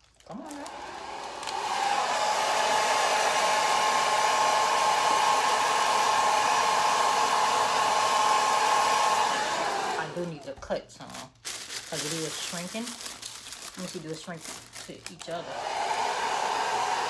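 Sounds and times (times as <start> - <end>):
hair dryer blowing: 0.3 - 10.5, 15.2 - 17.0.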